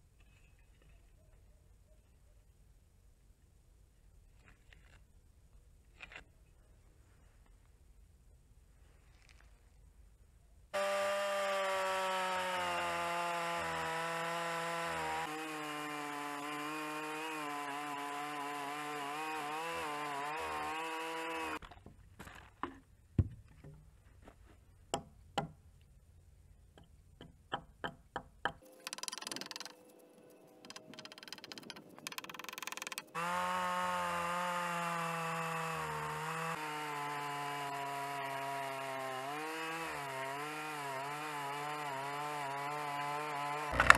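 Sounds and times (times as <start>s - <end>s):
chainsaw cutting log: 10.8s - 21.8s, 27.8s - 29.8s, 30.6s - 43.9s.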